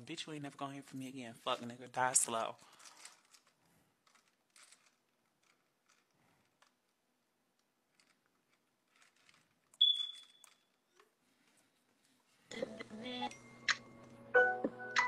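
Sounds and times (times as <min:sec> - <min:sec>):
short high beep: 0:09.8 - 0:10.5.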